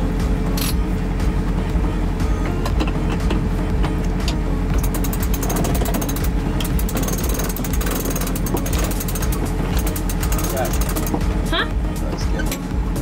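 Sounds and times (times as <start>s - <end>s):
boat engine droning: 0.0s - 13.0s
winch clicking rapidly: 4.8s - 11.3s.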